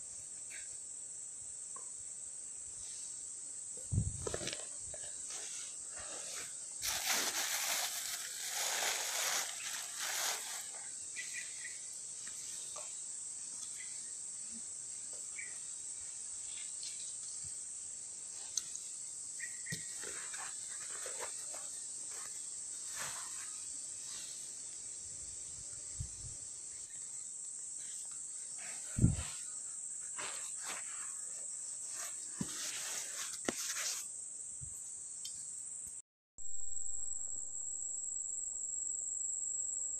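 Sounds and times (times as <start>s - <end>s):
insects shrilling: 3.9s - 34.2s
handling rustling: 6.3s - 10.8s.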